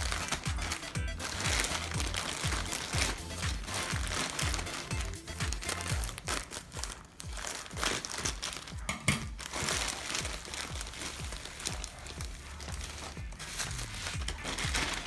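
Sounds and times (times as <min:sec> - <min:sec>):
background music with bass beat: 0:00.0 - 0:15.0
plastic bag crinkling: 0:00.0 - 0:15.0.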